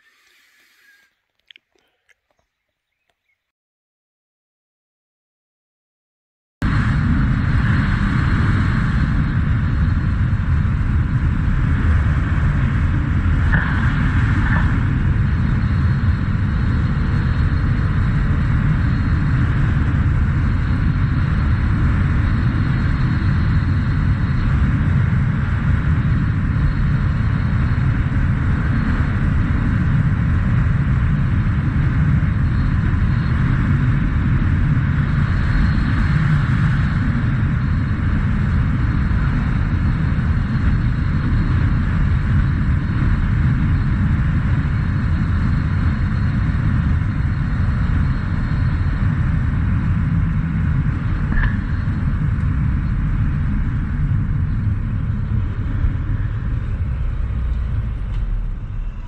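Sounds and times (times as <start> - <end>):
wind on microphone: 6.6 - 59.0
motorcycle engine and tyres droning: 6.7 - 59.0.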